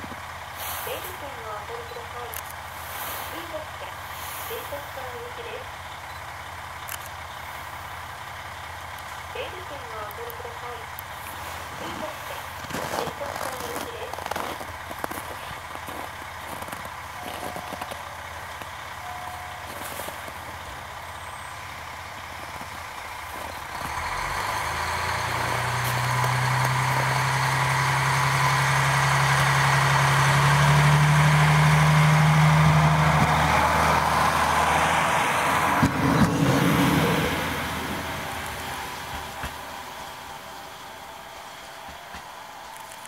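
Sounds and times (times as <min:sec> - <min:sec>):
diesel railcar engine: 0:00.0 - 0:43.0
train wheels clattering on rails: 0:41.1 - 0:43.0.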